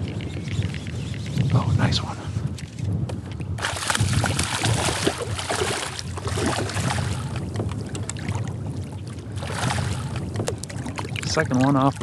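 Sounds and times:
wind rumble on microphone: 0.0 - 12.0
water splashing and lapping: 3.2 - 12.0.

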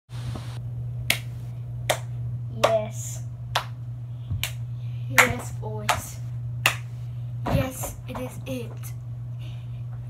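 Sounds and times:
low hum: 0.1 - 10.0
finger snaps: 1.0 - 1.3, 4.4 - 4.6.

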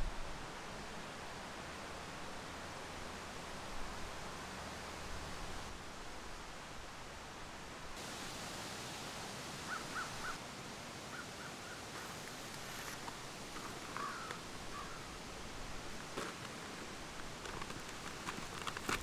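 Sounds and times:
background hiss: 0.0 - 19.0
longer bird calls: 9.6 - 10.4, 11.1 - 12.4, 13.5 - 15.2.

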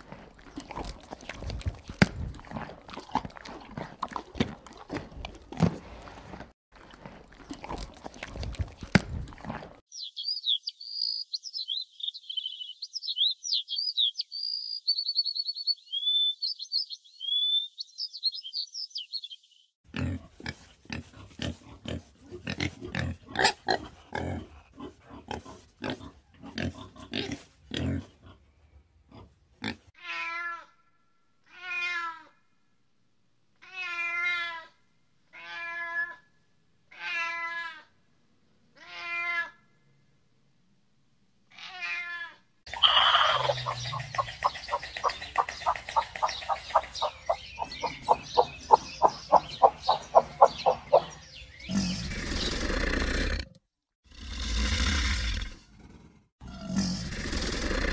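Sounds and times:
pigs grunting: 0.0 - 9.8, 19.9 - 29.9, 42.7 - 57.9
cat meowing: 30.0 - 30.7, 31.5 - 32.3, 33.6 - 34.7, 35.3 - 36.2, 38.8 - 39.6, 41.5 - 43.4.

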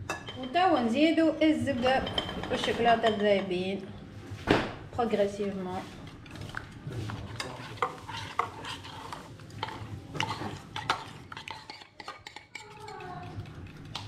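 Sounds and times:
utensil stirring in mixing bowl: 5.1 - 14.0.

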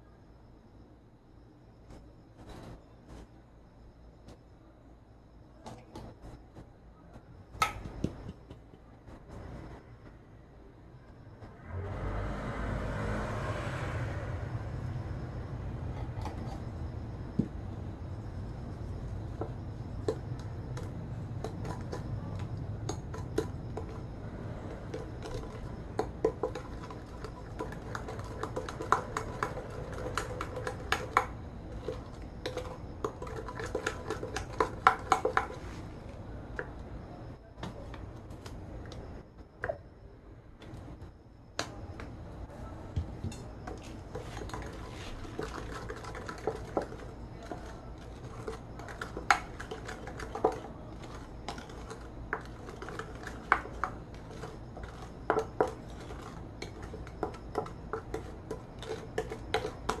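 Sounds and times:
steady low hum: 0.0 - 60.0
spatula scraping ceramic bowl: 43.7 - 60.0.

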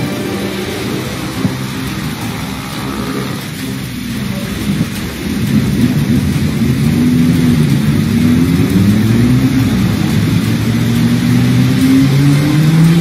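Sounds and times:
car engines revving: 0.0 - 13.0
cars driving through floodwater: 0.0 - 13.0
rain hiss: 0.0 - 13.0.

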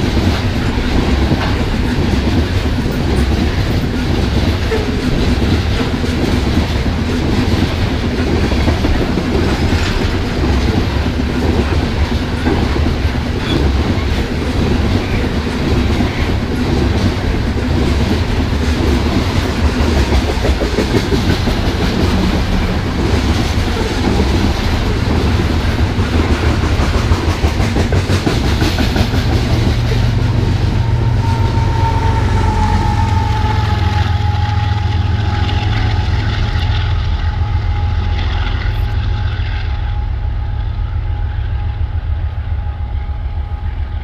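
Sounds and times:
wheels clicking over rail joints: 0.0 - 30.6
freight train rolling past: 0.0 - 44.0.

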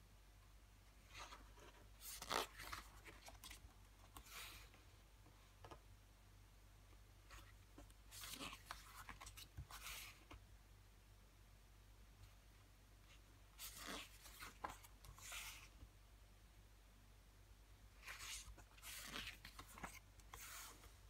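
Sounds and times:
paper pages rustling: 1.1 - 4.7, 7.3 - 10.4, 13.6 - 15.7, 18.0 - 21.0.

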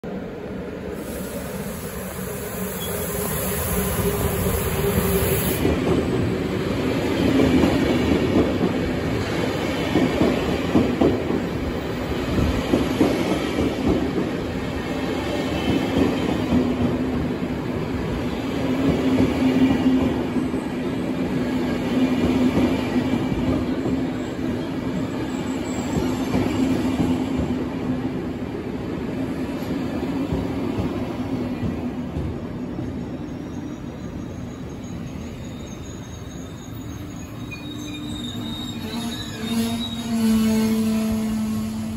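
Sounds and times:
train wheels clacking and rumbling: 5.6 - 20.5.

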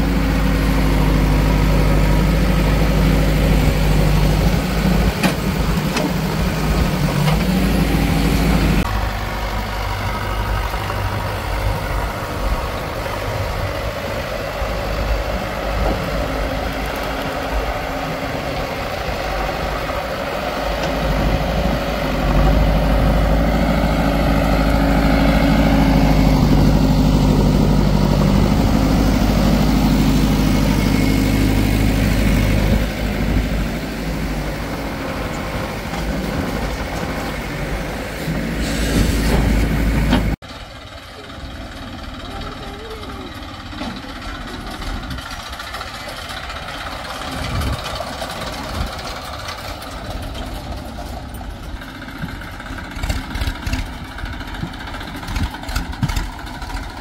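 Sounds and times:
diesel engines idling: 0.0 - 57.0.

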